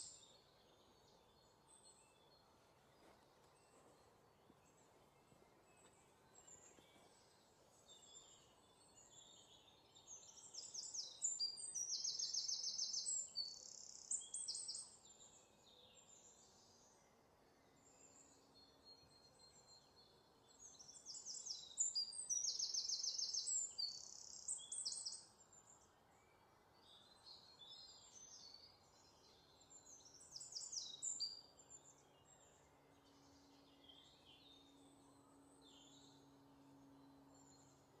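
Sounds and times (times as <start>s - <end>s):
faint bird chirping: 0.0s - 38.0s.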